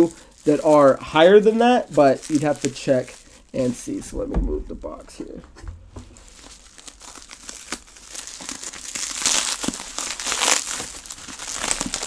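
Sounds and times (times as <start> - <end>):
plastic packaging crinkling: 0.0 - 4.1, 4.7 - 12.0.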